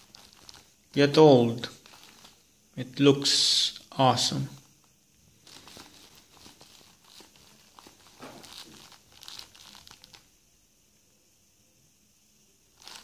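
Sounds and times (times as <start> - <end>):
stiff leather mitt crackling: 5.4 - 10.2.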